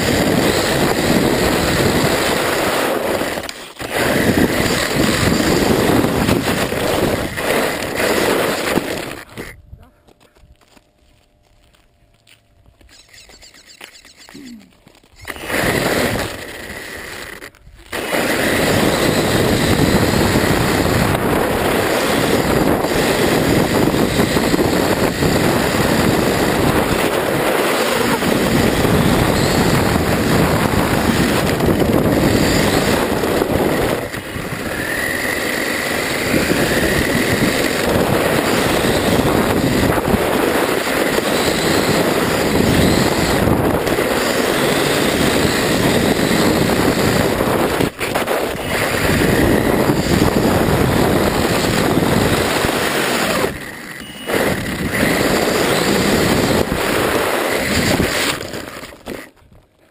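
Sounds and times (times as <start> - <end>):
wind rushing over microphone: 0.0 - 9.9, 15.2 - 59.7.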